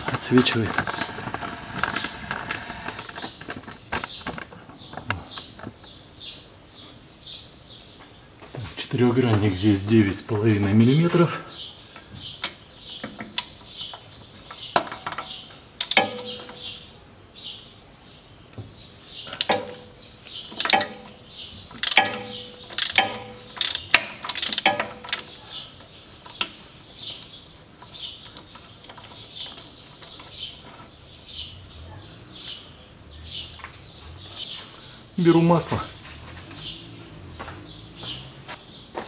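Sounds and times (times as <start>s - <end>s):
birds chirping: 0.0s - 39.0s
ratchet tapping on metal axle: 21.7s - 25.3s.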